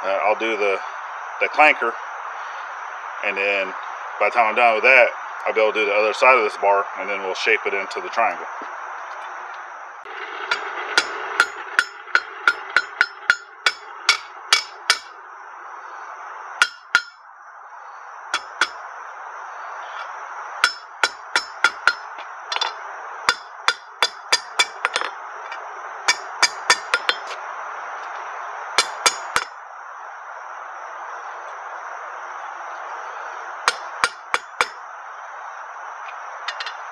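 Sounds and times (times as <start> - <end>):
steady background noise: 0.0 - 36.9
hammer striking steel on anvil: 10.5 - 15.1, 16.6 - 17.2, 18.4 - 18.8, 20.6 - 22.7, 23.3 - 25.1, 26.1 - 27.3, 28.8 - 29.5, 33.7 - 34.8.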